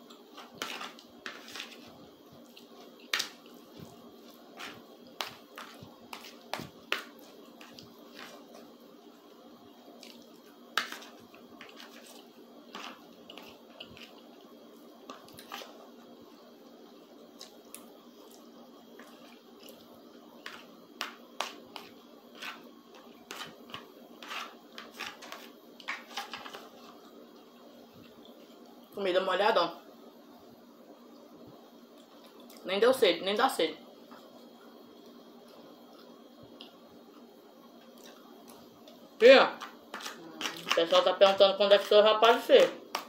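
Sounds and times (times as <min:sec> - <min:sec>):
metal spoon scraping plastic plate: 0:00.4 - 0:01.9, 0:23.3 - 0:26.8
wet chewing: 0:10.0 - 0:14.3.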